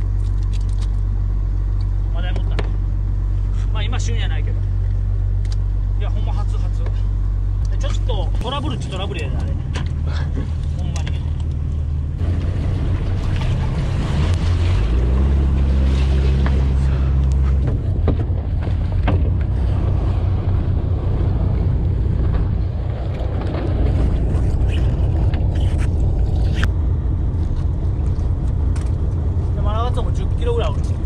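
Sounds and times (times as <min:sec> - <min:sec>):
boat engine humming: 0:00.0 - 0:31.0
wind: 0:00.0 - 0:31.0
water noise: 0:07.6 - 0:31.0.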